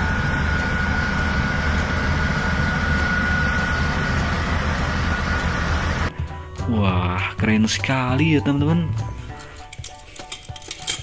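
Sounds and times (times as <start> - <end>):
high whine: 0.0 - 6.1
diesel engine rumble: 0.0 - 6.2.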